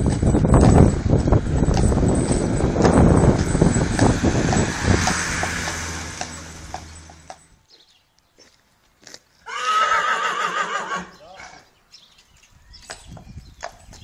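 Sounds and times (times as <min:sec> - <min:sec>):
carriage wheels rumbling: 0:00.0 - 0:07.6
hooves clip-clopping: 0:00.0 - 0:09.5, 0:11.4 - 0:14.0
horse whinnying: 0:09.4 - 0:11.6.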